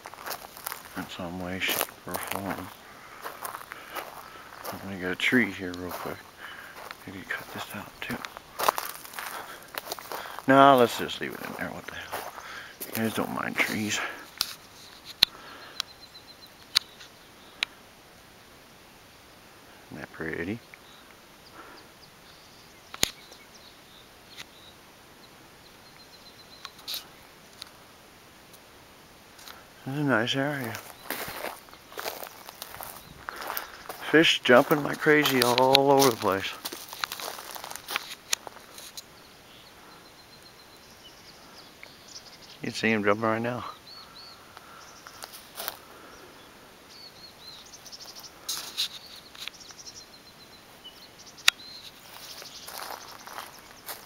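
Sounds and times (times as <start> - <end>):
small birds chirping faintly: 0.0 - 54.0
steady outdoor hiss: 0.0 - 54.0
sharp clicks: 22.9 - 23.4.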